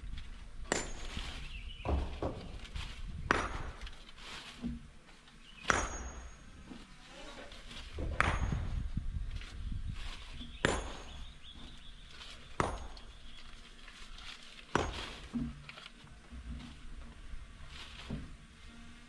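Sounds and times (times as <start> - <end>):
sharp ringing knocks: 0.7 - 1.2, 5.6 - 6.7, 8.1 - 9.0, 10.6 - 11.5, 12.6 - 13.2.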